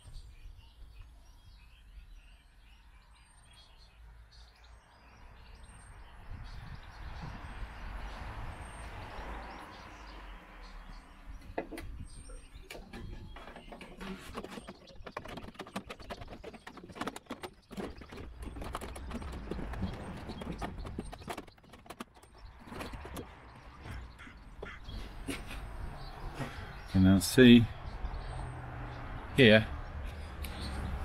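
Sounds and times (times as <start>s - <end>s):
wind rumble on microphone: 5.4s - 10.0s, 11.0s - 13.7s, 15.8s - 24.1s
metal rods clicking and rattling: 12.6s - 23.8s.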